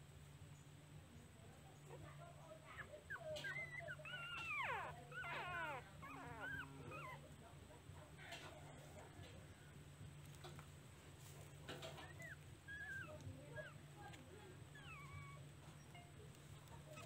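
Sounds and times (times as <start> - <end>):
puppies whimpering: 2.6 - 7.4, 11.7 - 17.0.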